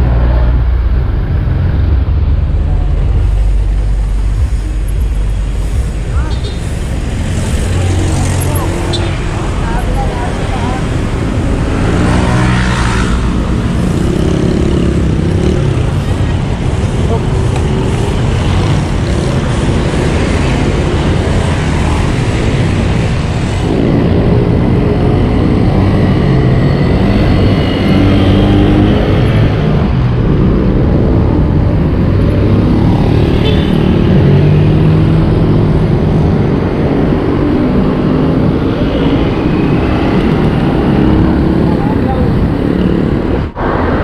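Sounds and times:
vehicle engines humming: 0.0 - 44.0
wind rush on microphone: 34.1 - 44.0.

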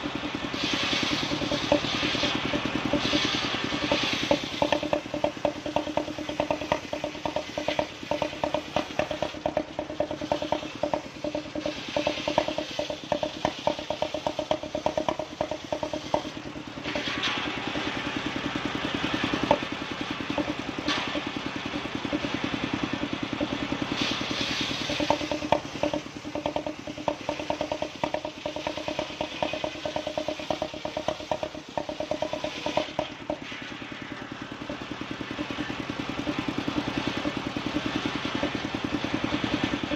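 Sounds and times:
saw bench engine chugging: 0.0 - 39.9
saw blade cutting log: 0.5 - 17.4, 20.3 - 21.4, 23.4 - 33.7.

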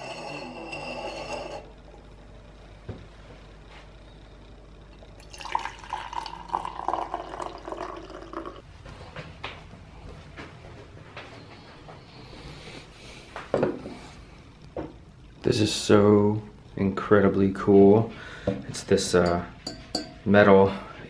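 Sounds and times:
coffee pouring into metal mug: 5.2 - 8.6.

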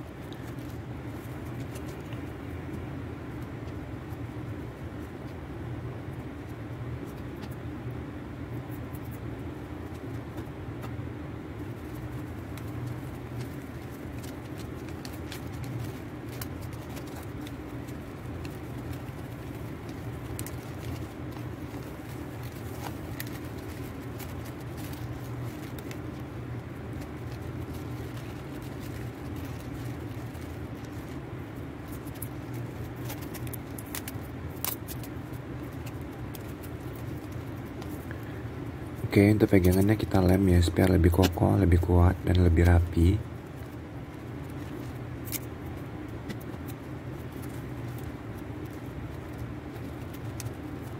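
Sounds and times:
paper crinkling: 0.0 - 5.4, 11.6 - 50.9
low background hum: 0.0 - 50.9.

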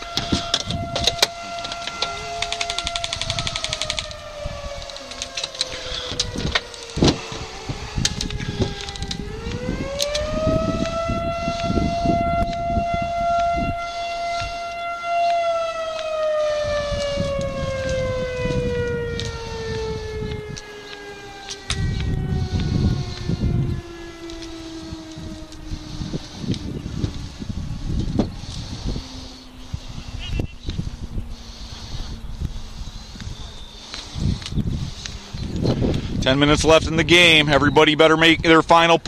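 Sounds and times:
siren wailing: 0.0 - 39.0
sharp clicks: 0.6 - 7.1.

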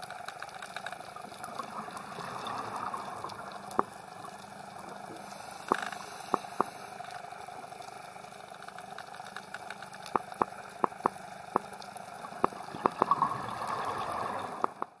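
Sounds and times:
sharp underwater clicks: 3.6 - 4.4, 5.6 - 7.2, 8.4 - 13.9, 14.5 - 15.0
underwater watery hiss: 5.1 - 7.4.

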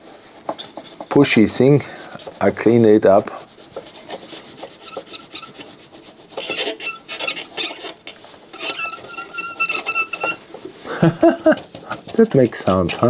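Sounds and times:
cotton swab scrubbing board: 0.0 - 13.0
short squeaks: 6.4 - 10.5.

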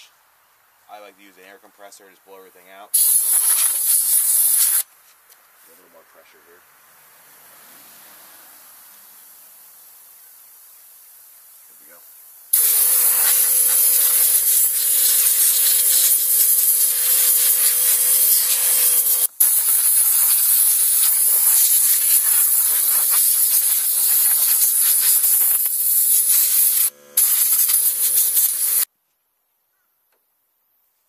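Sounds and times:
compressed air blow gun hissing: 3.0 - 4.9, 11.4 - 28.9.

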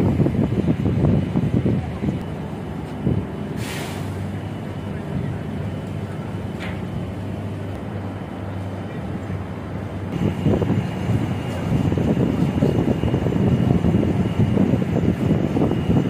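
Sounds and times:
machinery droning: 0.0 - 16.0
short hiss: 3.6 - 4.2.

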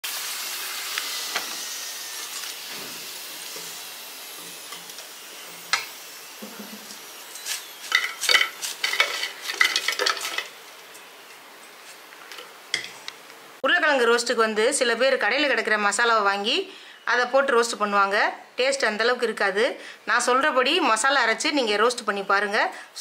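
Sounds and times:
food sizzling in a pan: 0.0 - 13.6
spatula scraping a pan: 6.5 - 10.6.

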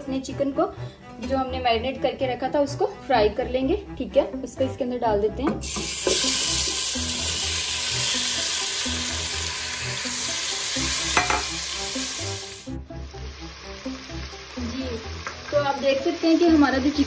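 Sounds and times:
chicken sizzling in oil: 5.6 - 17.0
spatula tapping pan: 11.2 - 11.5.

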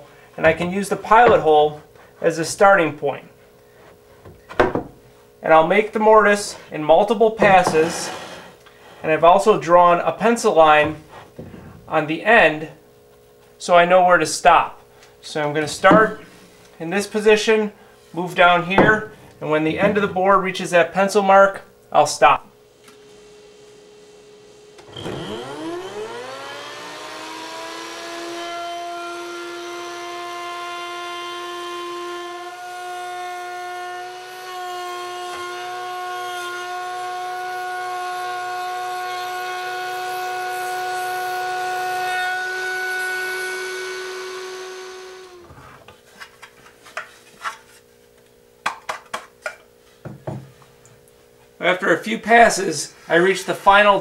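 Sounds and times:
router bit cutting wood: 7.4 - 8.6, 24.8 - 45.5
knocks: 18.8 - 19.1
router motor whining: 24.8 - 45.6.

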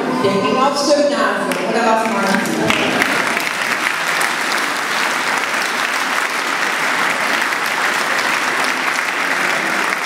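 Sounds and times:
audience applauding: 2.0 - 10.0.

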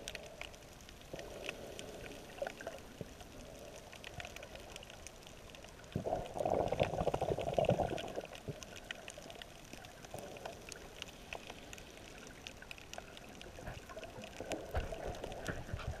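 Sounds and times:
faint clicks and crackles: 0.0 - 16.0
muffled underwater water noise: 0.0 - 16.0.

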